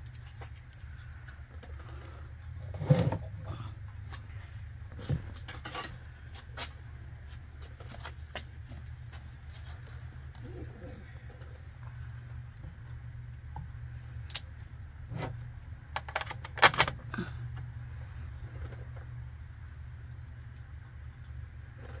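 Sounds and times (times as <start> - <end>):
steady low hum: 0.0 - 22.0
small metal clinks and taps: 6.6 - 11.0.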